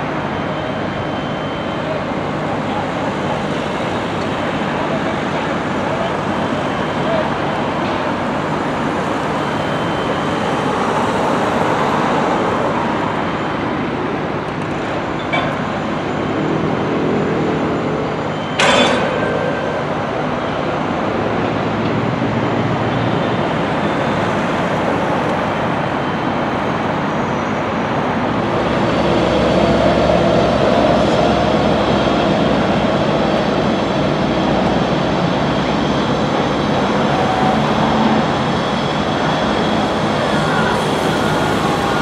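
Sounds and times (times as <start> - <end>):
construction machinery: 0.0 - 42.0
traffic noise: 0.0 - 42.0
sharp bang: 18.5 - 20.4.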